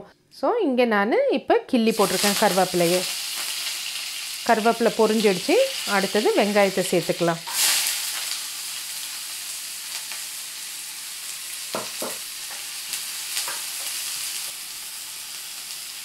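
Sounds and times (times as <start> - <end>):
onion sizzling in hot oil: 1.9 - 16.0.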